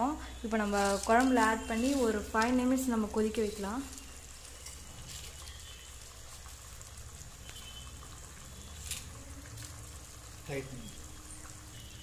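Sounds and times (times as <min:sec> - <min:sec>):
curry bubbling: 0:00.0 - 0:12.0.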